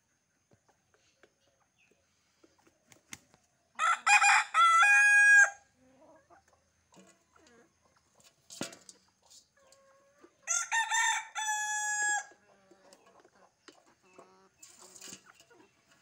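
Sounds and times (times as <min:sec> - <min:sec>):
rooster crowing: 0:03.8 - 0:05.6, 0:10.4 - 0:12.4.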